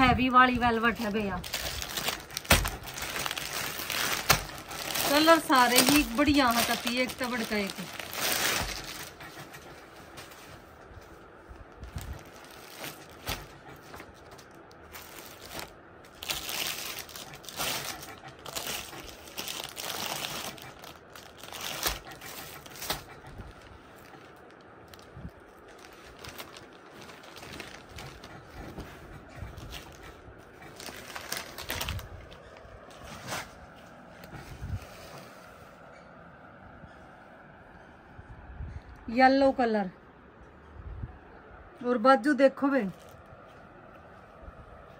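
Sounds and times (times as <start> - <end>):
plastic packaging crinkling: 0.5 - 9.2, 11.7 - 28.8, 30.6 - 33.4.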